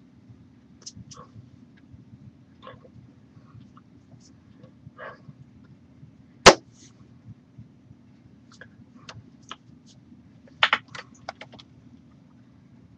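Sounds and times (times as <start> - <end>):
hands slapping: 10.6 - 11.6.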